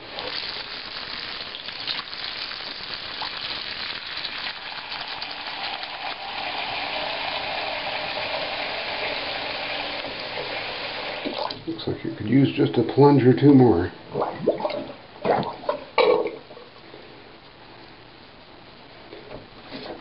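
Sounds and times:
faucet water splashing into drain: 0.1s - 11.6s.

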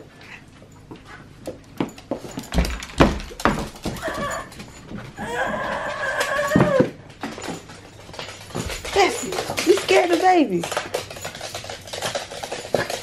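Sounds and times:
dog scrambling on wooden floor: 1.8s - 13.0s
dog whining: 3.9s - 7.0s.

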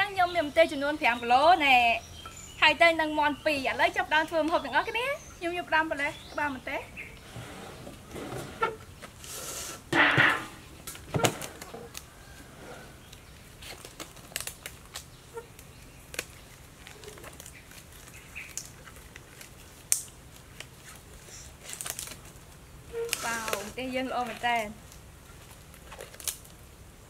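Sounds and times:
disposable gloves rustling: 5.9s - 26.7s
glove material snapping: 13.6s - 21.1s, 25.4s - 26.6s.

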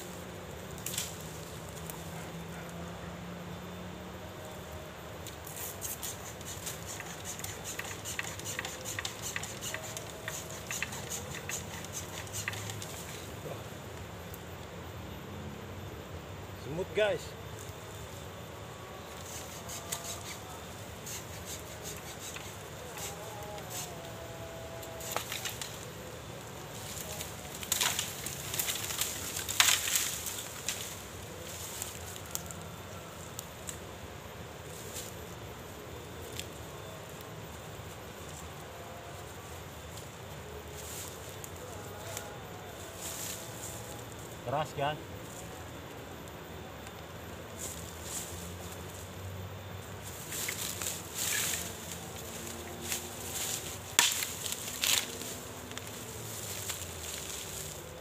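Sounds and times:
dry twigs crackling and snapping: 0.1s - 2.0s, 4.4s - 14.7s, 24.8s - 33.9s, 36.1s - 38.4s, 50.0s - 58.0s
bamboo snapping: 0.7s - 2.0s, 25.0s - 25.9s, 26.8s - 32.6s, 52.8s - 57.7s.

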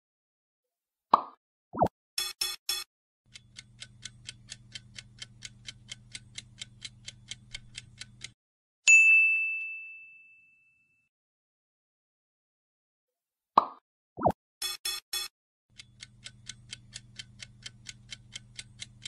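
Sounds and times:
clock-like ticking: 2.2s - 8.4s, 14.6s - 19.0s
bright ding: 8.9s - 11.1s.

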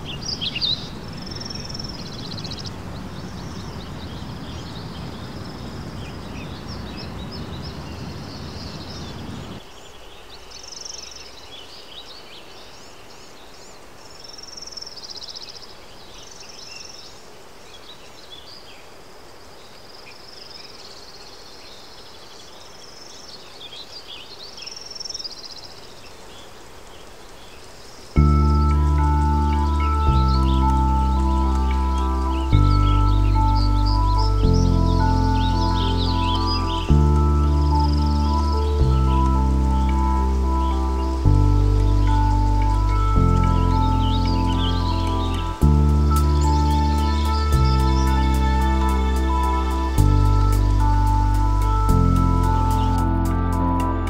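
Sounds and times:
birds chirping: 0.0s - 17.2s, 23.9s - 54.0s
low outdoor rumble: 28.2s - 54.0s.

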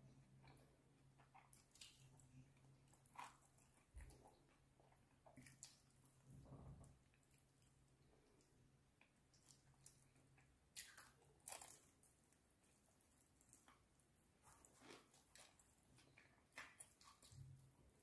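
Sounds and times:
chicken being pulled apart and chewed: 9.0s - 17.8s.

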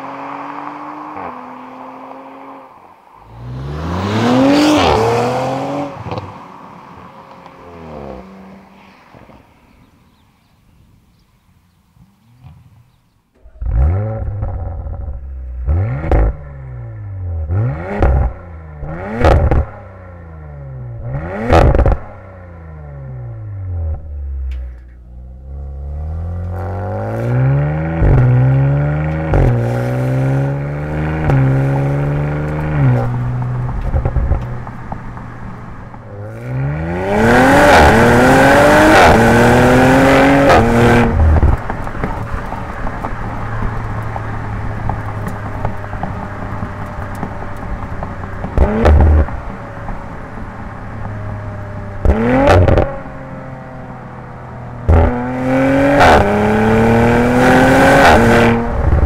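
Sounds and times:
car engine revving: 0.0s - 8.7s, 12.1s - 59.0s
car accelerating through gears: 3.2s - 6.5s, 36.1s - 42.7s, 51.5s - 54.1s, 54.8s - 59.0s
exhaust cracks: 12.0s - 59.0s.

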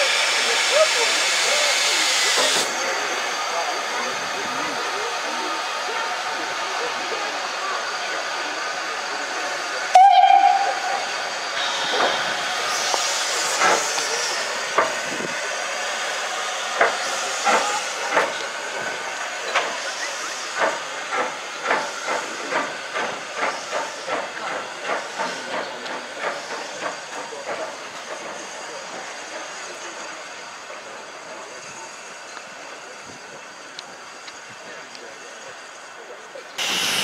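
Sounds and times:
hiss of steam: 0.0s - 37.0s
steam locomotive whistle: 9.9s - 12.4s.

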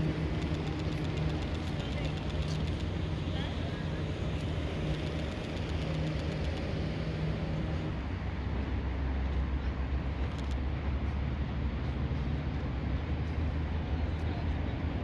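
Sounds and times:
engine humming: 0.0s - 7.9s.

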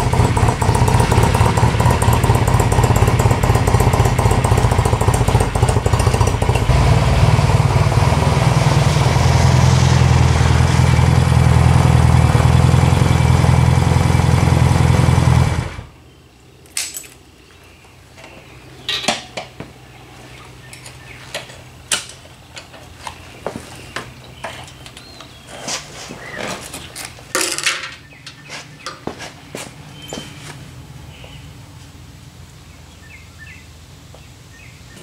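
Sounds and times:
motorcycle engine running: 0.0s - 15.9s.

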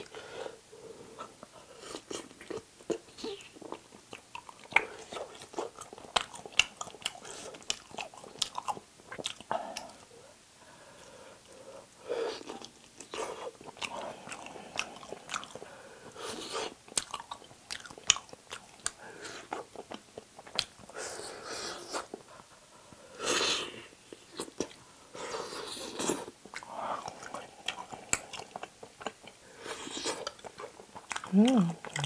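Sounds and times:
wet chewing and smacking: 1.3s - 10.0s, 12.4s - 21.0s, 25.4s - 32.0s.

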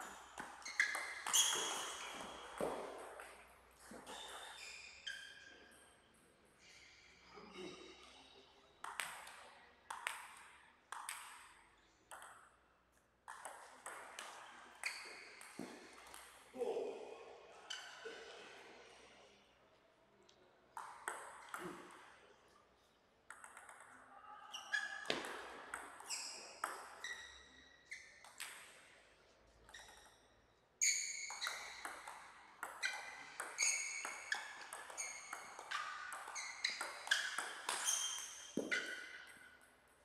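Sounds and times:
table tennis ball bouncing: 0.0s - 4.6s, 8.8s - 12.6s, 13.2s - 16.4s, 20.8s - 22.1s, 23.3s - 24.0s, 24.6s - 28.8s, 30.8s - 39.7s.

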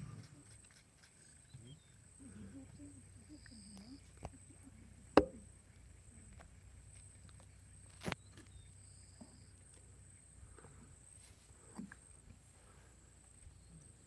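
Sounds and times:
sharp knock: 5.2s - 5.4s.

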